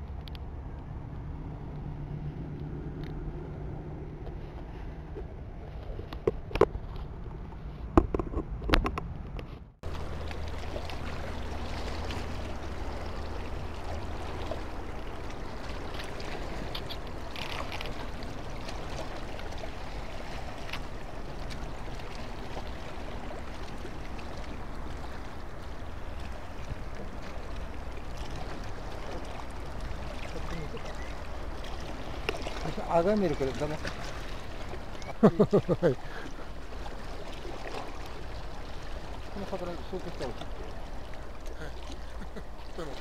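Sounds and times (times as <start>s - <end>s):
wind: 0.0s - 43.0s
fishing tackle clicks and knocks: 8.0s - 9.5s
water rushing: 9.8s - 43.0s.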